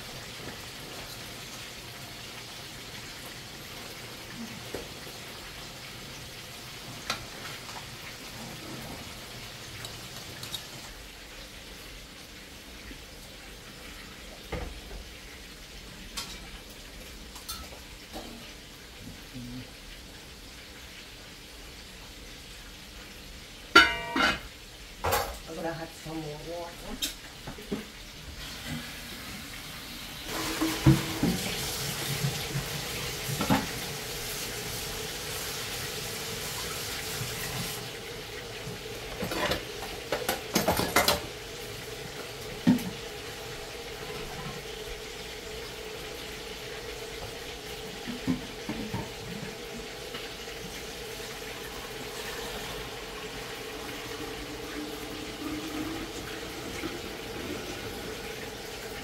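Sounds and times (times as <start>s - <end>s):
kitchen tap running: 0.0s - 59.0s
pots and utensils clinking: 7.0s - 11.0s, 16.1s - 16.6s, 17.4s - 18.6s, 23.7s - 25.6s, 30.3s - 34.4s, 38.8s - 43.2s, 47.1s - 50.3s.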